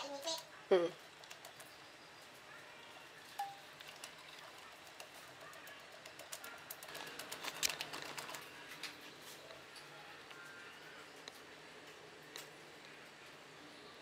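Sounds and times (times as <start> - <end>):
plastic packet crackling: 6.8 - 9.0.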